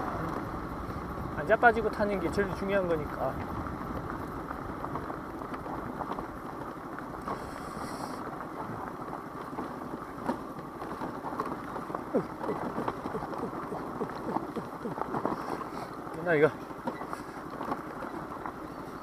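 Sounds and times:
wind noise on microphone: 0.0s - 10.5s
light crackles: 0.0s - 19.0s
scooter rumbling: 0.0s - 19.0s
tyres on wet road: 0.0s - 19.0s.

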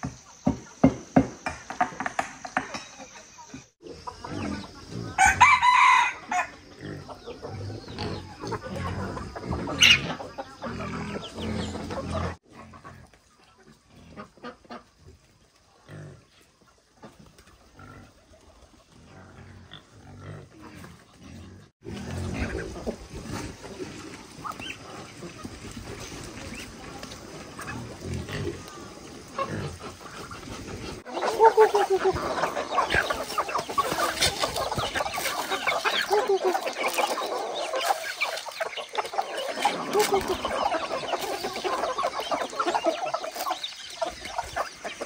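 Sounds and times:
chickens clucking: 0.0s - 45.0s
rooster crowing: 5.2s - 6.6s.

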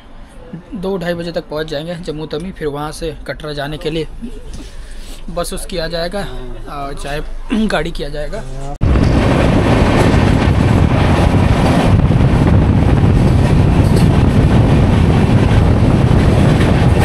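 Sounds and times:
train wind and wheel noise: 8.8s - 17.0s.

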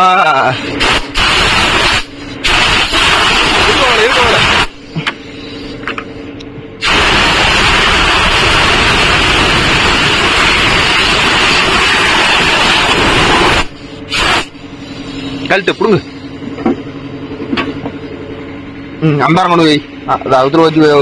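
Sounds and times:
steady hum: 0.0s - 21.0s
air blow gun hissing: 0.6s - 5.7s, 6.8s - 16.3s.

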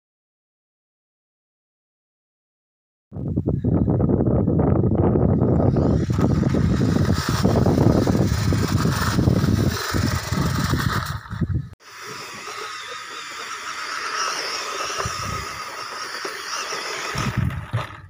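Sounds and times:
wind rumble on microphone: 3.2s - 11.8s, 17.1s - 18.0s
electric motor and gears whining: 5.3s - 18.0s.

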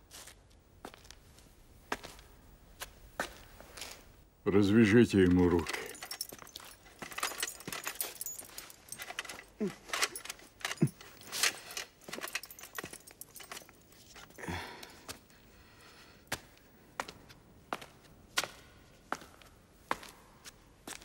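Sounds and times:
metal armour jingling: 4.8s - 15.4s
rope being untied: 5.6s - 15.3s.

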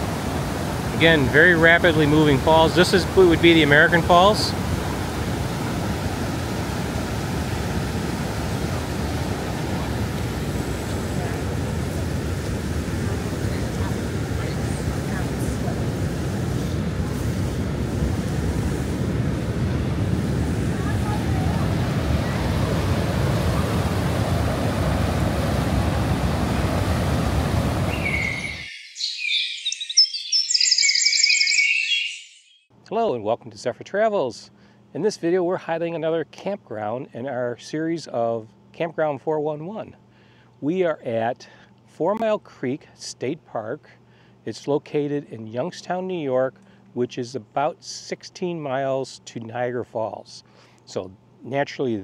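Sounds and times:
water rushing over rapids: 0.0s - 15.7s, 20.3s - 28.7s
bird chirps and trills: 27.9s - 32.7s.

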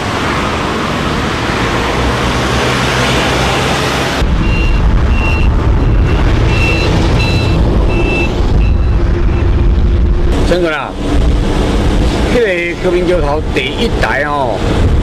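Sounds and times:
deep vehicle rumble: 0.0s - 15.0s
steady rushing noise: 0.0s - 15.0s
short high electronic beep: 4.4s - 9.5s.

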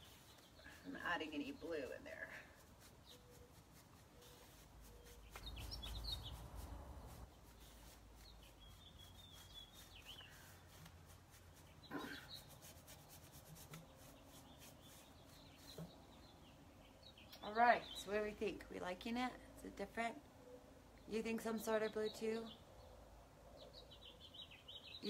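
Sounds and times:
faint brush strokes on wood: 0.0s - 16.2s
faint bird chirps: 2.6s - 10.8s.

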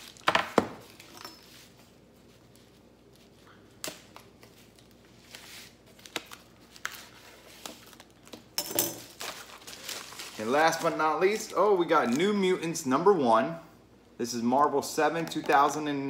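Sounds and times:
packaging rustle: 4.2s - 12.3s.

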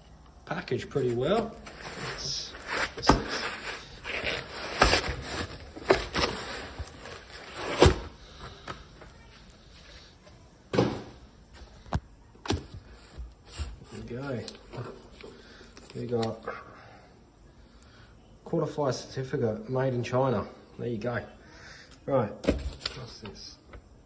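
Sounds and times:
foam scraping against cardboard: 1.6s - 8.0s.

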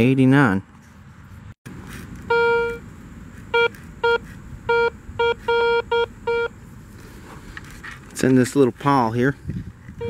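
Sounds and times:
metal detector beeps: 2.3s - 2.8s, 3.5s - 6.5s.

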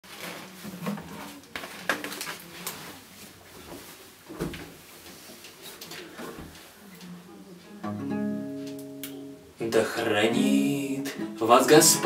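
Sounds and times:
acoustic guitar being handled: 7.9s - 9.3s.

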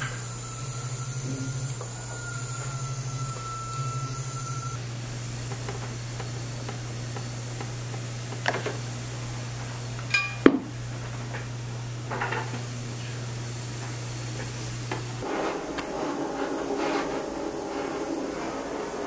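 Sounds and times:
rough buzz: 0.0s - 4.8s, 15.2s - 19.0s
ringing metallic ping: 10.1s - 10.5s
low hum: 14.8s - 19.0s.

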